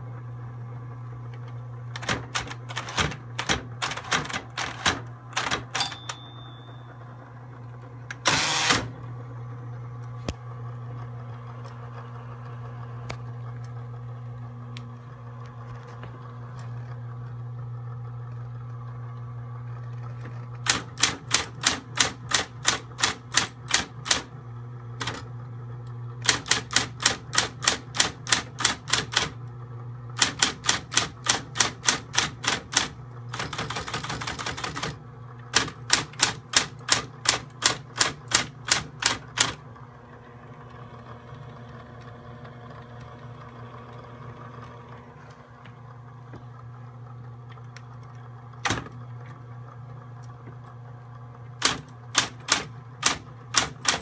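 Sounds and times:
typewriter motor hum: 1.2 - 9.2, 18.2 - 45.7, 46.5 - 50.8, 51.4 - 54.0
typewriter keys striking: 2.0 - 6.6, 20.6 - 24.3, 25.0 - 25.2, 26.2 - 29.4, 30.2 - 39.6, 51.6 - 54.0.

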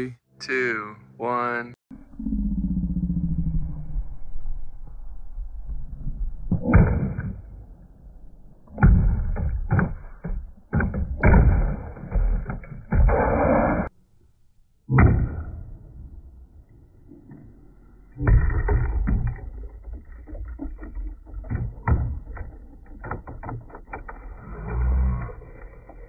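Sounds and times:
low rumble: 1.9 - 8.7.

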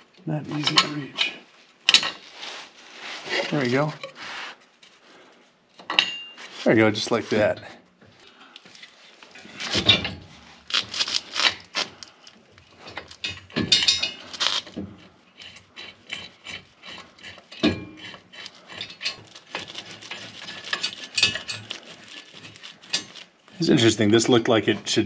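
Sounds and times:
metal hardware scraping and clicking: 0.5 - 2.4, 8.6 - 23.7.

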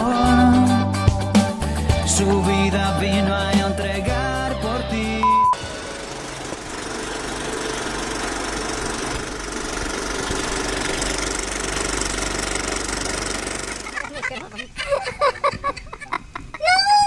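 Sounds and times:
film projector clatter: 5.6 - 14.1.

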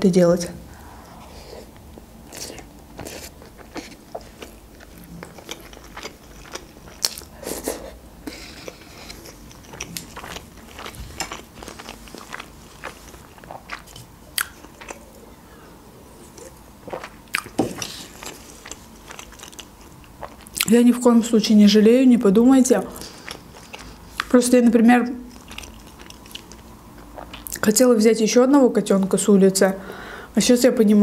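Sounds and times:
person chewing: 1.3 - 15.3, 16.1 - 20.7, 22.9 - 24.3, 25.3 - 27.6.

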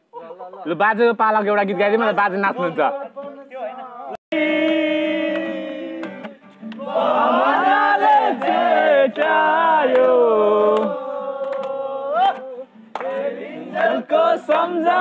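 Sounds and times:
group singing unaccompanied: 2.8 - 15.0
hand claps: 4.6 - 7.0, 8.0 - 15.0.

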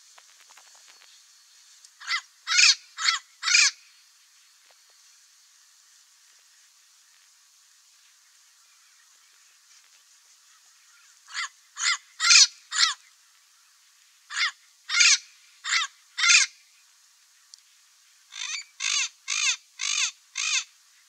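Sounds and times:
parrot squawking: 2.0 - 3.8, 11.3 - 13.0, 14.3 - 16.5, 18.3 - 20.6.

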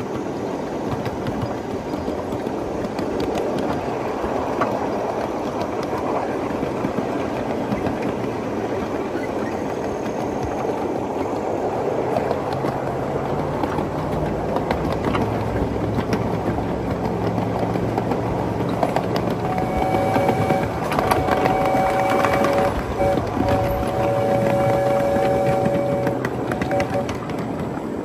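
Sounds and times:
train wheels rumbling on rail: 0.0 - 28.0
scattered clicks: 16.9 - 27.7
steam whistle: 19.4 - 27.2.

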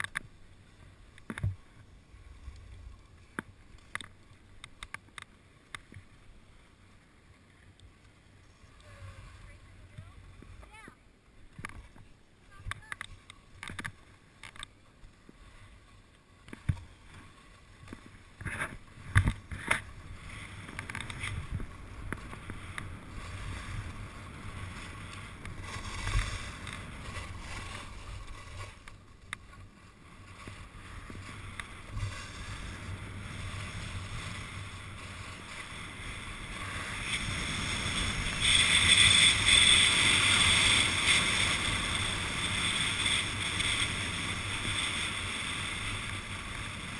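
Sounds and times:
ski clacks and knocks: 0.0 - 6.2, 11.5 - 46.9
skis scraping over snow: 0.0 - 46.9
wind noise on microphone: 17.8 - 46.9.

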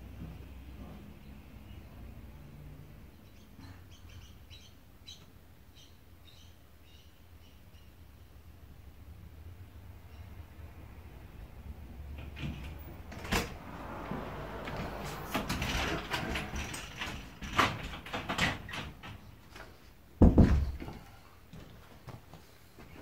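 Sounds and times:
security screen door rattling: 12.0 - 19.6
door thump: 20.2 - 20.9.

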